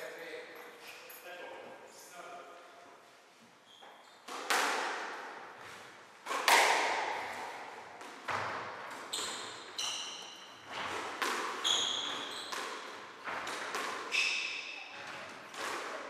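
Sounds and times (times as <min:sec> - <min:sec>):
shoes squeaking on wooden floor: 0:03.5 - 0:04.3, 0:09.0 - 0:11.0, 0:11.6 - 0:13.5
squash ball hits: 0:04.2 - 0:05.4, 0:06.2 - 0:16.0.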